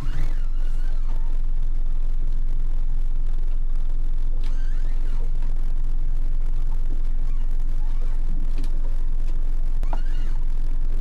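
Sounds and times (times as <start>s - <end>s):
outboard engine running: 0.0s - 1.5s.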